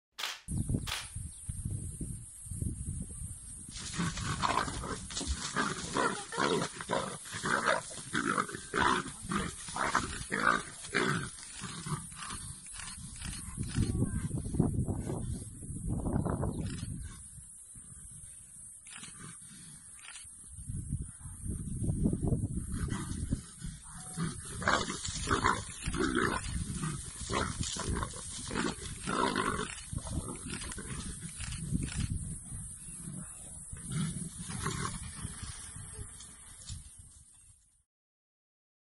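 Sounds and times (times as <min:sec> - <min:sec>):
leopards snarling and growling: 0:03.8 - 0:14.4, 0:18.8 - 0:20.2, 0:22.6 - 0:35.6.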